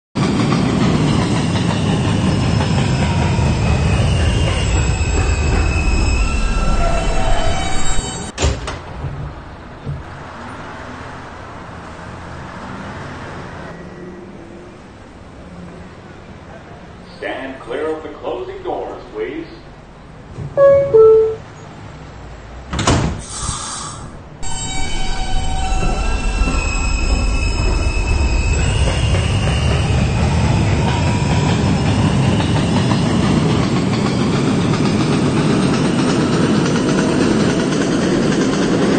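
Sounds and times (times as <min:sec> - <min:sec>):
train wheels on track: 0:00.2 - 0:14.0, 0:23.2 - 0:38.9
train double clunk: 0:08.2 - 0:10.7
standing train hum and hiss: 0:23.1 - 0:28.3.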